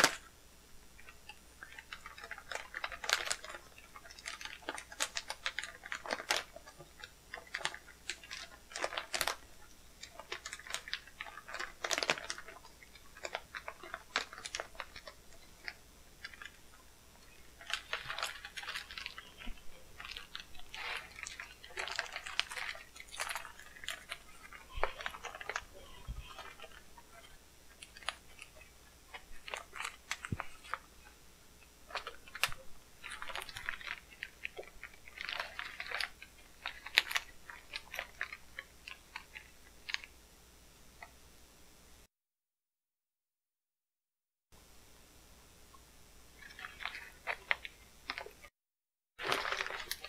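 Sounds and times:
plastic wrap crinkling: 0.0s - 0.3s, 1.0s - 40.2s, 46.3s - 48.5s, 49.2s - 50.0s.

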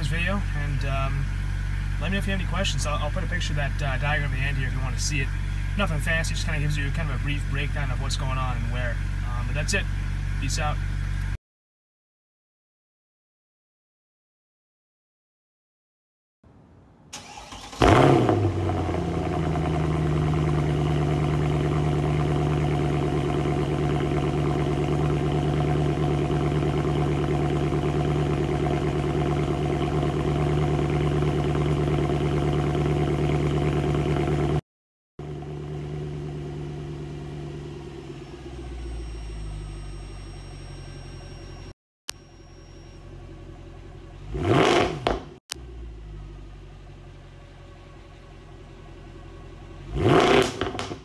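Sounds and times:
car engine starting and idling: 0.0s - 11.4s, 17.1s - 34.6s, 35.2s - 51.0s
deep engine rumble: 0.0s - 11.4s, 17.7s - 34.6s, 35.2s - 41.7s, 45.5s - 50.8s.

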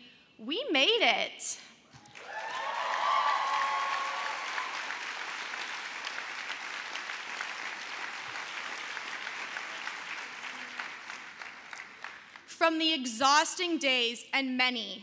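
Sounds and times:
crowd applauding: 2.0s - 12.6s.

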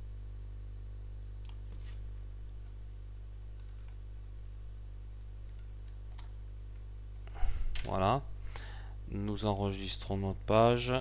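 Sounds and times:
electrical mains hum: 0.0s - 11.0s
keyboard typing: 3.6s - 4.4s, 5.4s - 6.9s.

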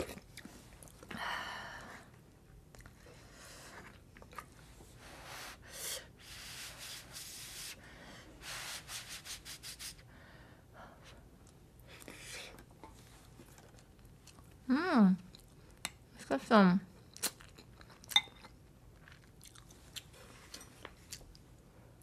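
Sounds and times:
person chewing: 15.3s - 15.9s, 17.0s - 21.4s.

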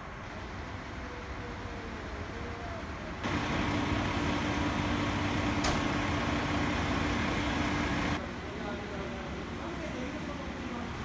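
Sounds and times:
vehicle engine idling: 0.3s - 8.2s.

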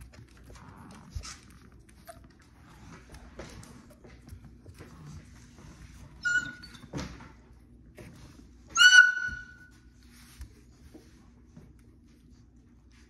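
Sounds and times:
puppy whimpering cries: 6.2s - 6.8s, 8.8s - 9.7s.

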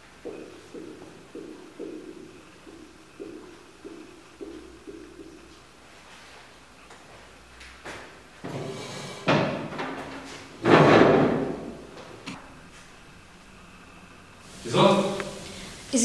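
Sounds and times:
furniture thumping: 10.6s - 11.8s.

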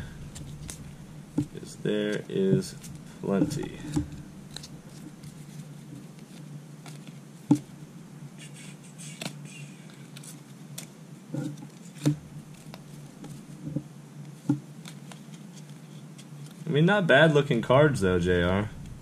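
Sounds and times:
steady low hum: 0.0s - 19.0s
cards flipping and sliding: 0.3s - 1.0s, 1.9s - 7.2s, 8.4s - 13.8s, 14.4s - 16.7s.

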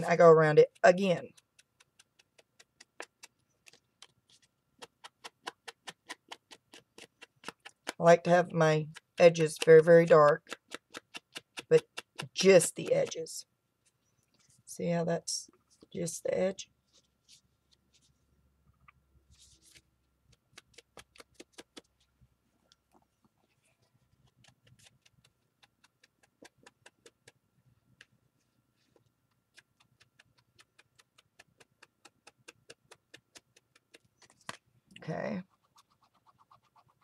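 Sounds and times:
foam tool tapping on paper: 4.8s - 8.0s, 8.9s - 13.2s.

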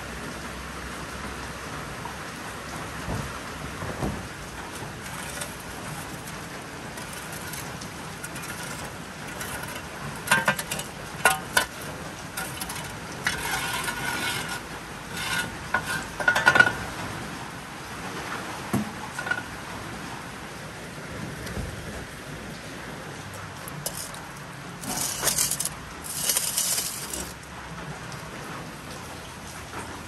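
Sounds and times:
rain hissing: 2.6s - 28.6s
utensils clinking against dishes: 4.8s - 16.8s, 23.7s - 27.4s.

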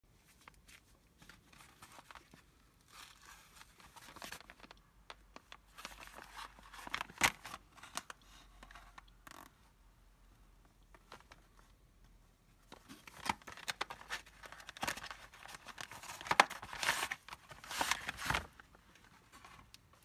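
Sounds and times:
cardboard scraping and rustling: 12.8s - 18.6s.

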